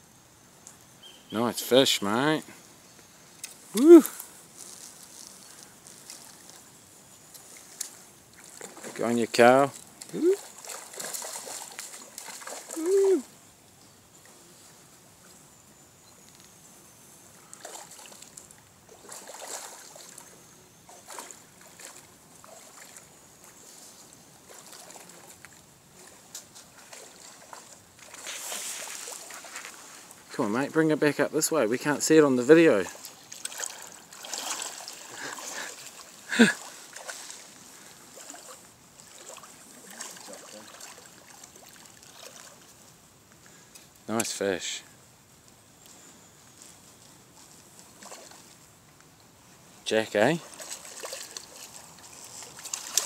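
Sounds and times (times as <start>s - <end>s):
river running water: 0.0s - 53.0s
fish thrashing and splashing: 10.0s - 12.9s, 33.3s - 37.5s, 50.4s - 53.0s
fish splashing: 10.0s - 13.2s, 17.6s - 20.2s, 26.0s - 29.5s, 33.0s - 42.7s, 50.4s - 53.0s.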